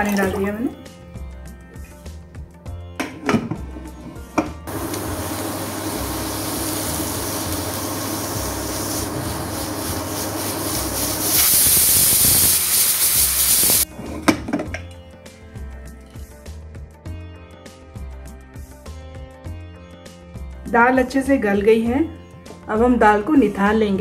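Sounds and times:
pressure cooker steam hissing: 0:04.7 - 0:13.9.

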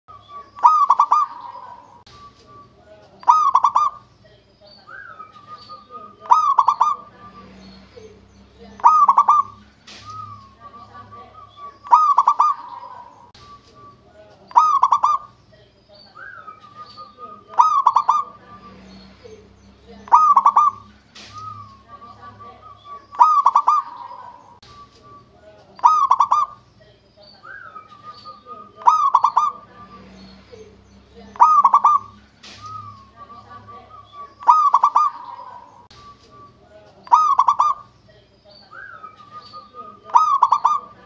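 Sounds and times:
dove cooing: 0:00.4 - 0:02.0, 0:03.2 - 0:04.1, 0:05.0 - 0:07.4, 0:08.8 - 0:13.3, 0:14.5 - 0:15.4, 0:16.2 - 0:18.7, 0:20.0 - 0:24.6, 0:25.8 - 0:26.6, 0:27.5 - 0:29.9, 0:31.3 - 0:37.9, 0:38.8 - 0:41.0.

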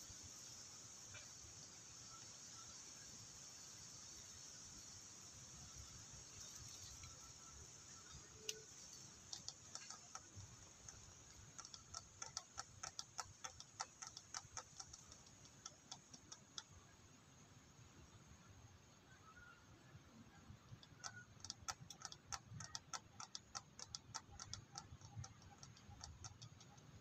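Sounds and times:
faint high hiss: 0:00.0 - 0:21.4
faint sharp clicks: 0:08.0 - 0:16.8.

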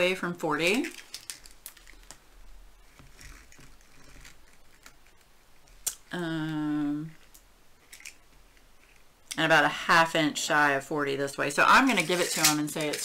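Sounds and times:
plastic rustling and clicks: 0:00.6 - 0:05.8, 0:07.1 - 0:09.1, 0:11.9 - 0:13.0.

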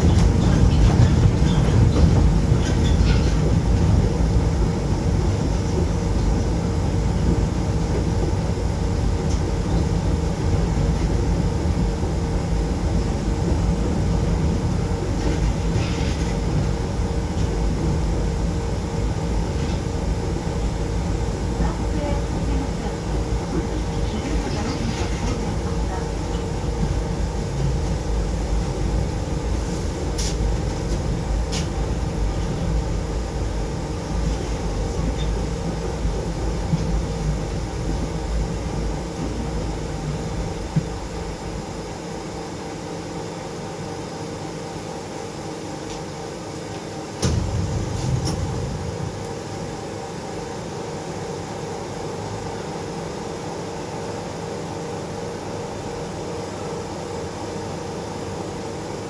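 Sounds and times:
steady train hum: 0:00.0 - 0:59.0
train rumble: 0:00.0 - 0:59.0
loud clunk: 0:47.2 - 0:48.6.

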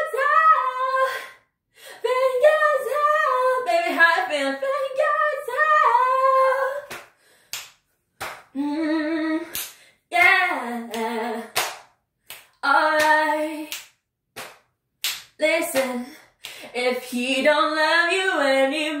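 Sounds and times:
woman singing a cappella: 0:00.0 - 0:06.9, 0:08.6 - 0:11.6, 0:12.6 - 0:13.8, 0:15.4 - 0:19.0
sharp hand claps: 0:06.8 - 0:08.6, 0:09.5 - 0:16.7.

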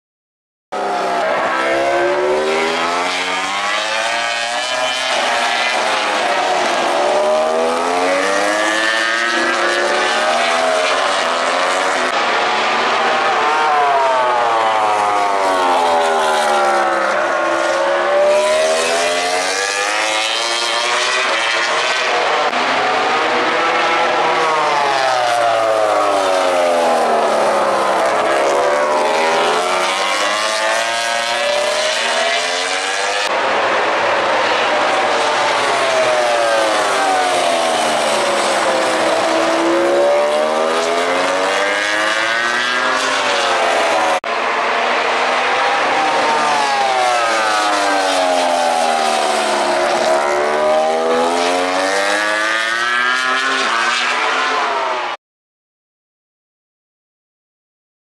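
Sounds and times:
racing motorcycle engines revving: 0:00.8 - 0:55.1.

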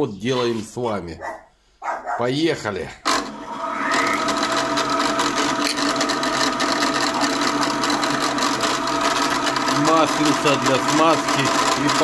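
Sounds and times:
drill press motor humming: 0:03.1 - 0:12.0.

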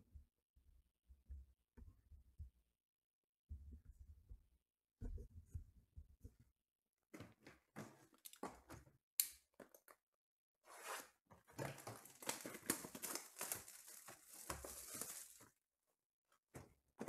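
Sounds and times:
plastic wrap crinkling: 0:11.6 - 0:15.5.

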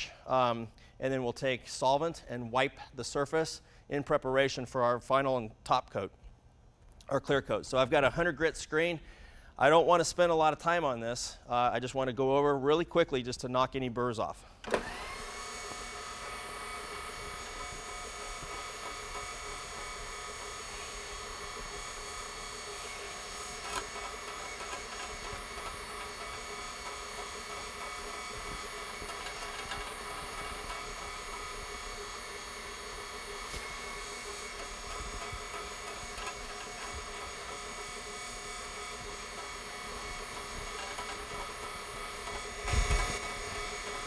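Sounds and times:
floor buffer droning: 0:14.7 - 0:44.0.

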